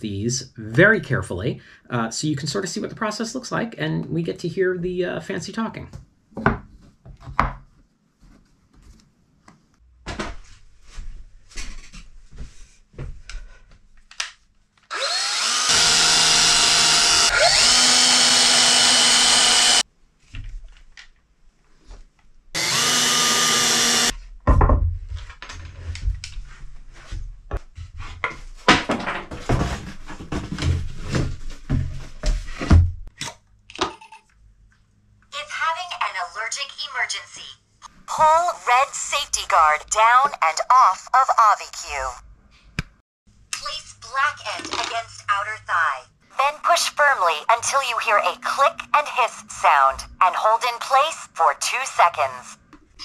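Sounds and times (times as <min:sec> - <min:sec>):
cordless drill running: 0:14.9 - 0:19.8, 0:22.6 - 0:24.1.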